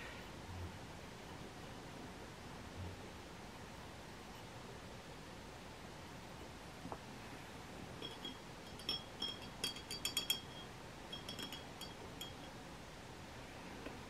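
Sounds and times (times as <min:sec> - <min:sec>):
glass pen clinking against glass: 0:08.0 - 0:12.6.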